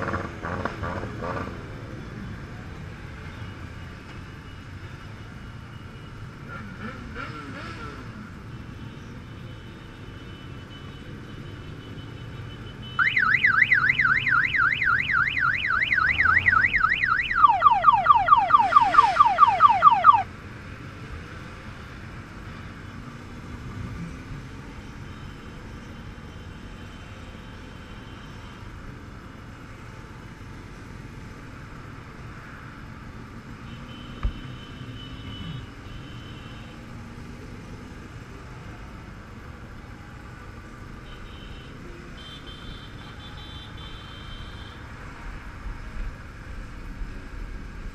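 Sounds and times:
motorcycle running: 0:00.0 - 0:02.0
electronic siren yelping: 0:13.0 - 0:20.3.

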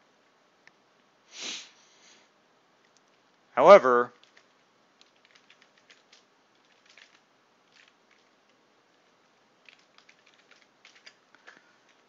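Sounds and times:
faint keyboard keystrokes: 0:04.1 - 0:12.0.

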